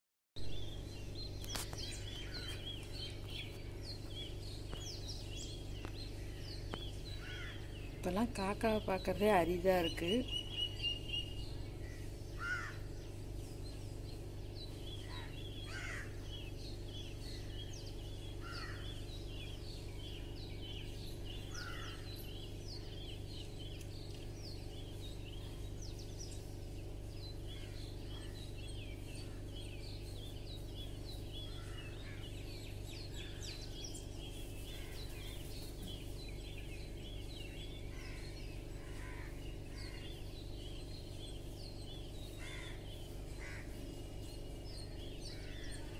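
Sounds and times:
small birds chirping: 0:00.4 - 0:45.9
steady low hum: 0:00.4 - 0:45.9
crow cawing: 0:07.2 - 0:07.7, 0:12.4 - 0:12.9, 0:15.0 - 0:16.2, 0:18.4 - 0:18.8, 0:21.5 - 0:22.0, 0:38.9 - 0:40.0, 0:42.4 - 0:42.8, 0:43.4 - 0:43.8.

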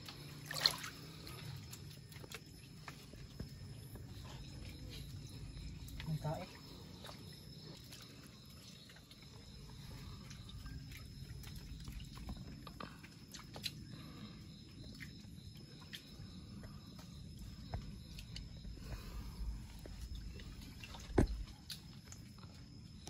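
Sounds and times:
river water: 0:00.0 - 0:14.3.

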